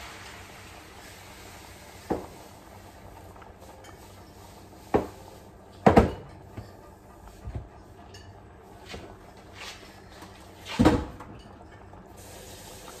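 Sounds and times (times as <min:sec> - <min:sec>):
kitchenware knocking and clanking: 0:05.8 - 0:06.9.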